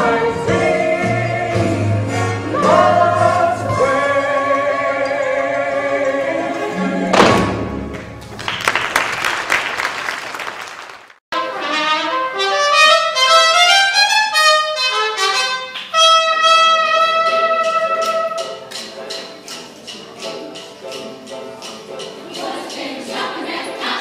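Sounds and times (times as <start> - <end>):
keyboard accompaniment: 0.0 - 8.5, 11.3 - 24.0
applause: 8.3 - 11.2
trumpet playing slow melody: 11.4 - 18.6.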